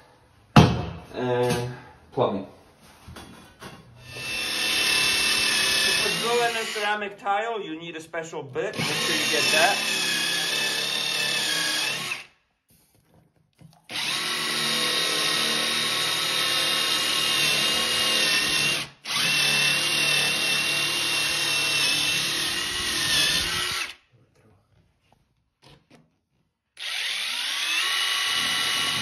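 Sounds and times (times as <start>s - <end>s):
drill whining into tile: 4.0s - 7.0s, 8.7s - 12.4s, 13.9s - 24.0s, 26.8s - 29.0s.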